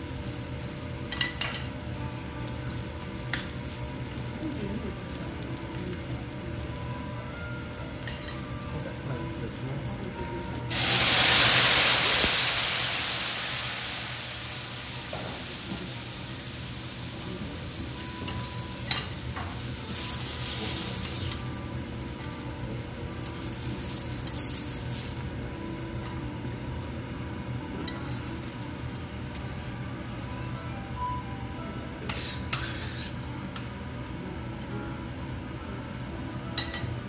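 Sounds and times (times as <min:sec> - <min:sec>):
beef sizzling on griddle: 0:00.0 - 0:30.5, 0:32.1 - 0:35.0
spatula clink and scrape on griddle: 0:01.1 - 0:01.7, 0:32.1 - 0:33.6, 0:36.6 - 0:36.9.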